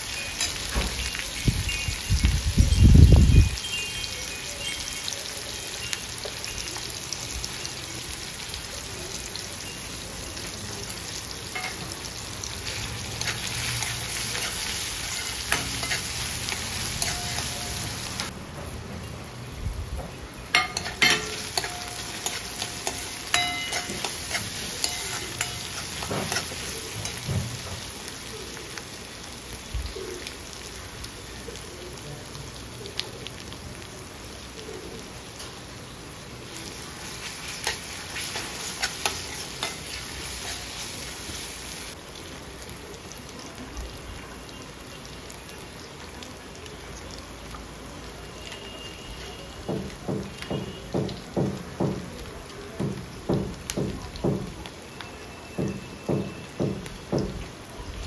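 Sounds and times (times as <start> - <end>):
vegetables sizzling in oil: 0.0 - 58.0
ladle scraping and clinking wok: 0.1 - 1.9, 11.5 - 18.3, 20.5 - 28.0, 36.6 - 41.7.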